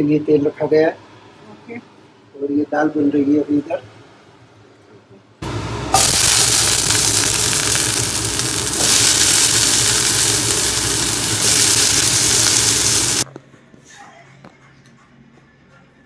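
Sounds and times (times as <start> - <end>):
potatoes sizzling in hot oil: 5.5 - 13.3.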